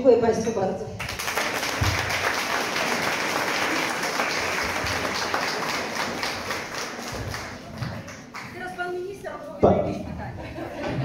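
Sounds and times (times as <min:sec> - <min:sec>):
audience applauding: 0:01.0 - 0:09.1.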